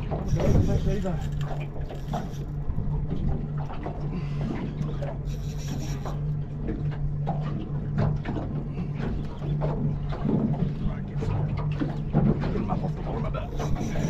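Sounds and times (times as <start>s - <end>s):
outboard engine humming: 0.0s - 14.0s
spinning reel cranking: 0.3s - 2.6s, 5.3s - 6.2s.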